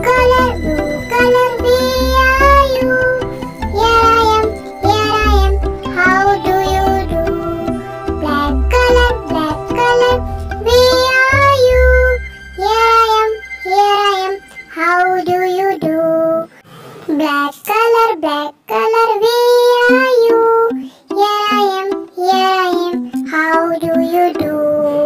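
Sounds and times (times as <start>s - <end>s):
light backing music: 0.0s - 16.4s, 19.4s - 25.0s
child singing: 0.0s - 16.5s, 17.1s - 25.0s.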